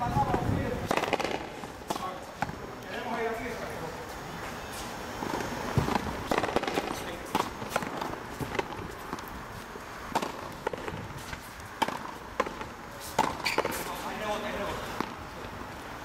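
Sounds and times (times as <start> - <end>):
rubber ball hitting rackets and walls: 0.3 - 2.6, 5.2 - 9.4, 10.1 - 14.3.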